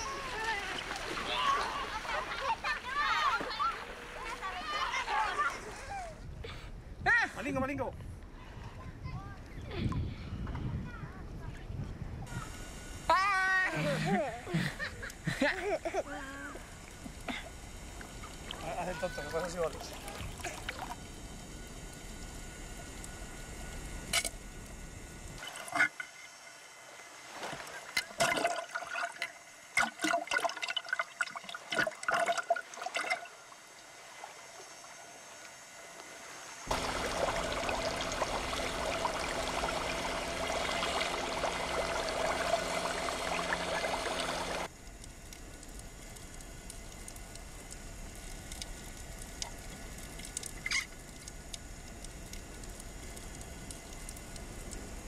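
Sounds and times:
boat motor heard underwater: 16.2s - 27.1s, 36.7s - 55.0s
sharp underwater clicks: 43.2s - 54.9s.

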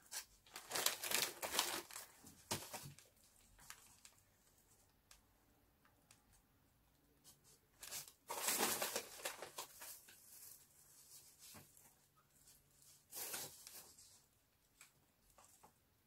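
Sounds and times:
packaging rustling and crinkling: 0.1s - 4.2s, 7.8s - 11.8s, 12.8s - 14.2s.

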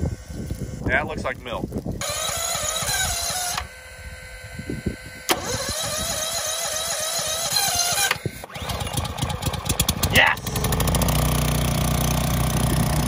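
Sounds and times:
pressure washer engine running: 2.0s - 4.5s, 5.1s - 13.0s.

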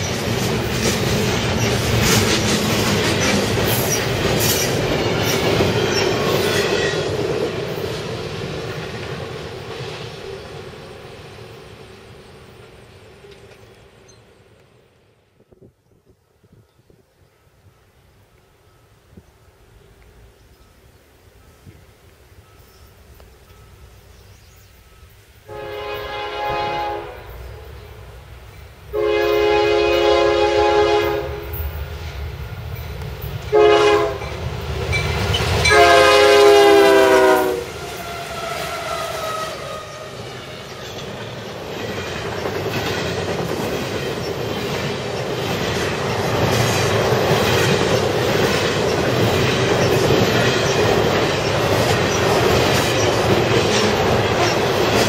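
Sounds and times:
train wheels clickety-clack: 0.0s - 11.9s, 31.0s - 55.0s
locomotive air horn blasts: 25.4s - 27.6s, 28.9s - 31.6s, 33.5s - 34.3s, 35.6s - 40.2s.

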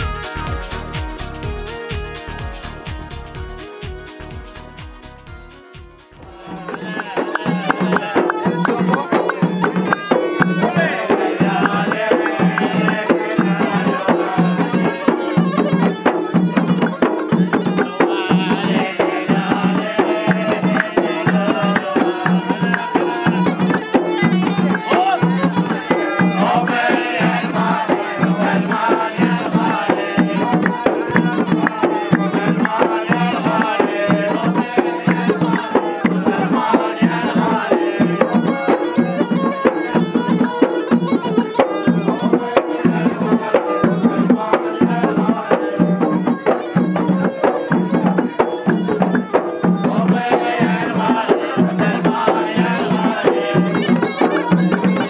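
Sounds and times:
double-headed drum beating: 0.0s - 55.0s
hand clapping: 6.6s - 13.8s, 20.1s - 26.2s, 29.7s - 36.2s, 53.2s - 55.0s.

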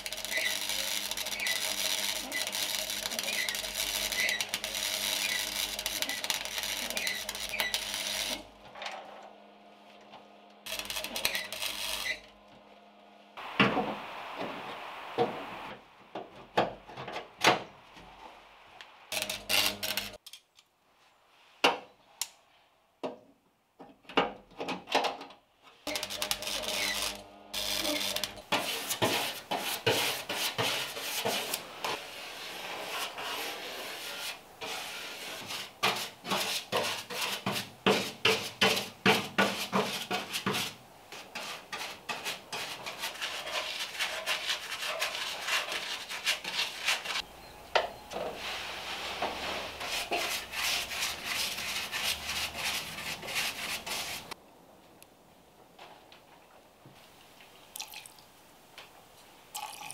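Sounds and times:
paintbrush scrubbing metal: 27.8s - 47.2s, 48.2s - 54.4s.

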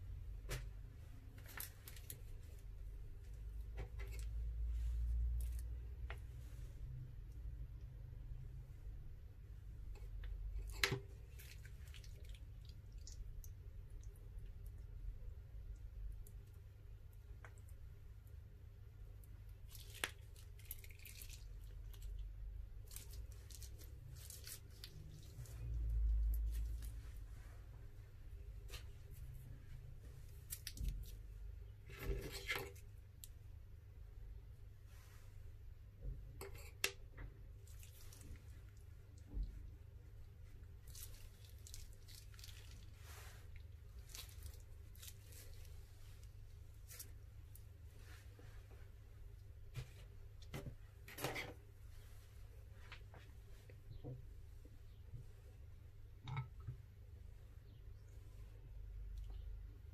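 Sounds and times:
low steady hum: 0.0s - 59.9s
slime squishing: 9.9s - 15.0s, 19.1s - 27.3s, 37.5s - 47.8s.

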